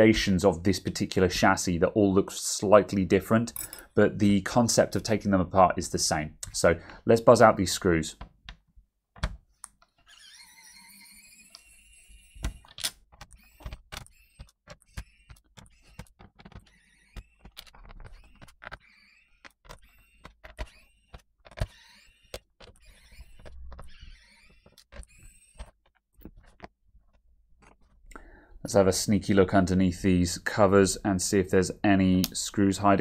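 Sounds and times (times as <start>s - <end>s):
tiny screws and tools clinking: 3.5s - 3.9s
electric screwdriver whirring: 10.1s - 25.7s.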